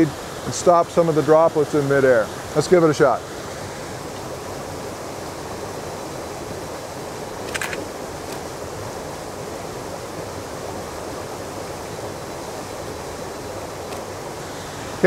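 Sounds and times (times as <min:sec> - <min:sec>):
water rushing over rocks: 0:00.0 - 0:15.0
camera shutter clicks: 0:07.4 - 0:08.4.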